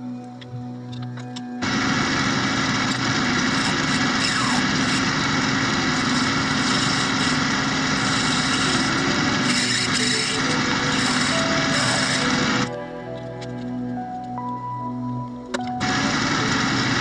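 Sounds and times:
metal lathe motor and gear hum: 0:01.6 - 0:13.7, 0:15.8 - 0:17.0.

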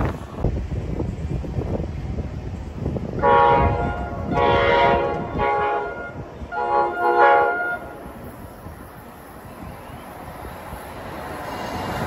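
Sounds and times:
wind rumble on microphone: 0:00.0 - 0:12.0
train air horn blasts: 0:03.2 - 0:08.1.

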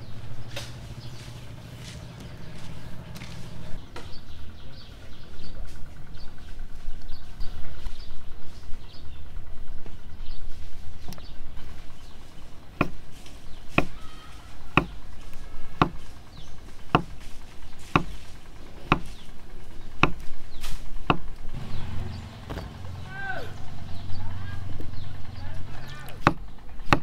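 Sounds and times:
knife chopping on wooden block: 0:12.8 - 0:13.0, 0:13.7 - 0:14.0, 0:14.7 - 0:15.0, 0:15.8 - 0:16.1, 0:16.9 - 0:17.2, 0:17.8 - 0:18.2, 0:18.9 - 0:19.2, 0:20.0 - 0:20.3, 0:26.2 - 0:27.0.

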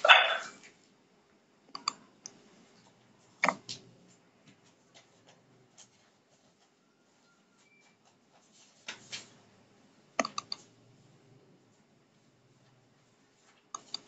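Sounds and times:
computer mouse and keyboard clicks: 0:01.7 - 0:02.4, 0:03.4 - 0:03.9, 0:10.2 - 0:10.7, 0:13.7 - 0:14.0.

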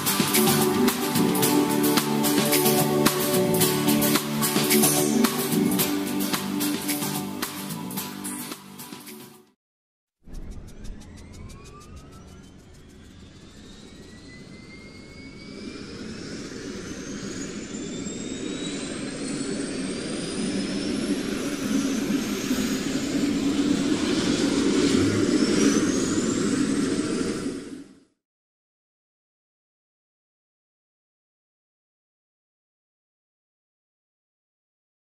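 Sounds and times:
helicopter turbine spooling up: 0:10.2 - 0:28.2.

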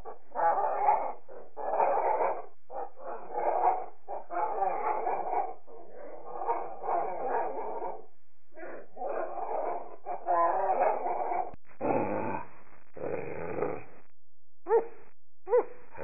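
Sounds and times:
harsh monster calls: 0:08.6 - 0:13.9.

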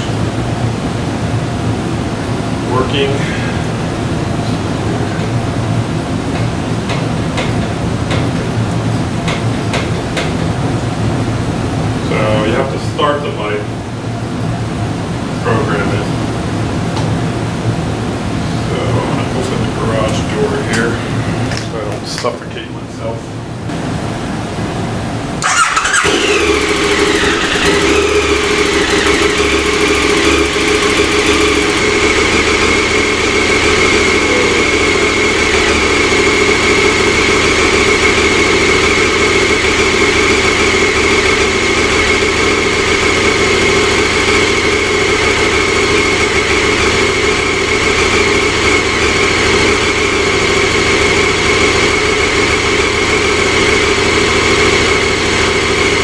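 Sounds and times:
motorcycle engine starting and idling: 0:25.4 - 0:56.0.

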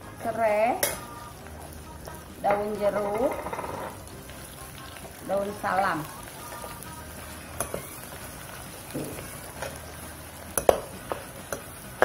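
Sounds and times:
food sizzling in oil: 0:00.0 - 0:12.0
metal spoon scraping wok: 0:02.5 - 0:04.0.

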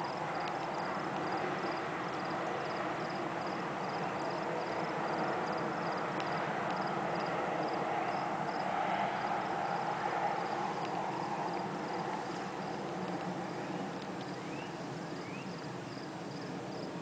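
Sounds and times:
steady rushing noise: 0:00.0 - 0:17.0
faint high chirp: 0:14.3 - 0:15.6.

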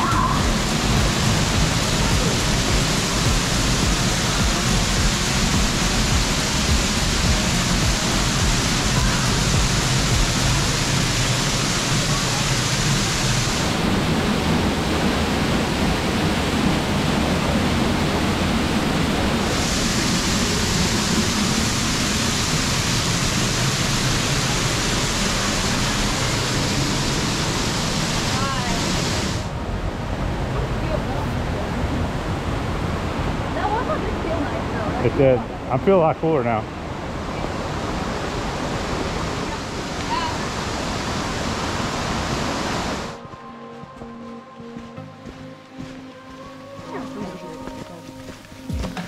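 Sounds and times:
waterfall rushing onto rock: 0:00.0 - 0:29.5.

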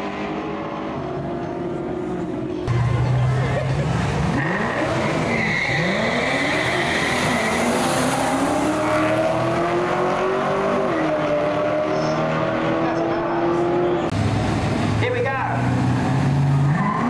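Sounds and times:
drag racing engines revving: 0:00.0 - 0:17.0.

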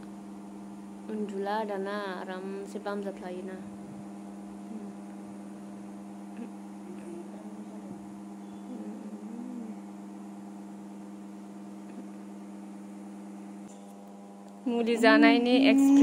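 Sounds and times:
low electrical hum: 0:00.0 - 0:16.0
faint soft voice sounds: 0:08.7 - 0:09.8.

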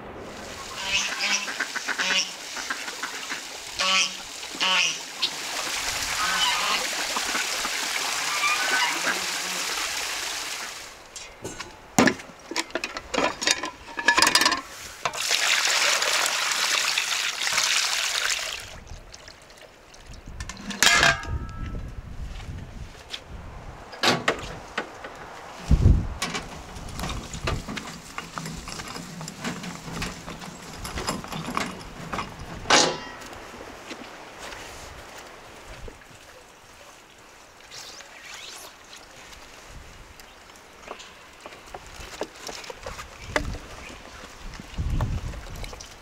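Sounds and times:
steady rushing noise: 0:00.0 - 0:01.9
waterfowl honking and quacking: 0:00.6 - 0:05.5, 0:06.1 - 0:09.8
sharp knocks and clatters: 0:26.2 - 0:33.3.

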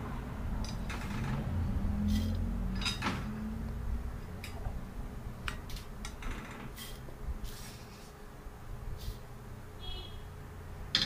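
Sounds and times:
low steady hum: 0:00.0 - 0:06.3.

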